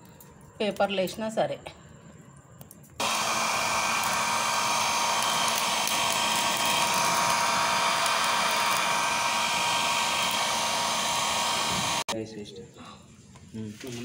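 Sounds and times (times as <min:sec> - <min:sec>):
electric fan motor whine: 0:03.0 - 0:12.1.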